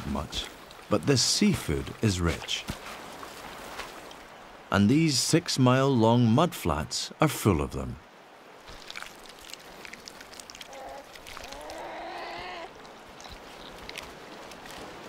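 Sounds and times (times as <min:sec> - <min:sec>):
wavering bleat-like animal call: 0:10.7 - 0:12.7.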